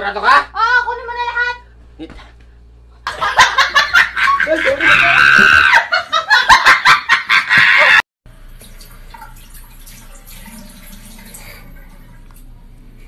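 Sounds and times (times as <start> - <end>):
honking laughter: 3.1 - 8.0.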